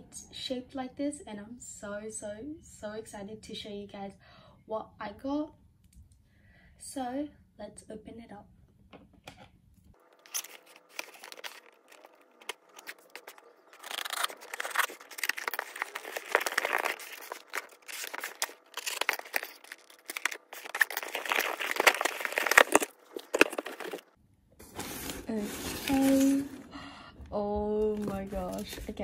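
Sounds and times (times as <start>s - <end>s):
plastic film crinkling: 10.0s - 24.2s, 27.8s - 29.0s
cardboard tearing: 10.2s - 24.1s.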